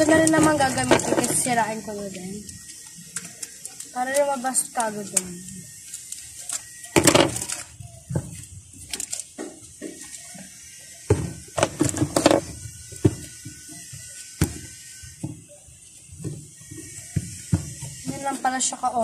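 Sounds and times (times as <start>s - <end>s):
plastic packaging crinkling: 5.8s - 10.5s.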